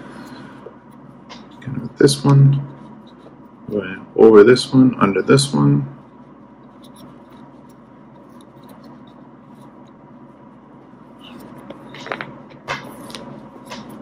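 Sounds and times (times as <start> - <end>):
rope strands rubbing and scraping: 6.0 - 14.0.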